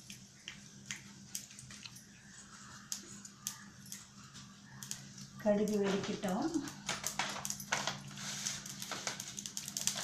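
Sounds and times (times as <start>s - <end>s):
mustard seeds popping in oil: 4.8s - 10.0s.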